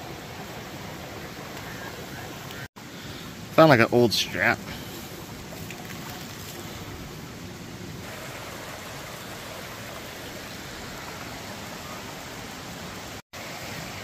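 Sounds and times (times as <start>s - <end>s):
river water rushing: 0.0s - 14.0s.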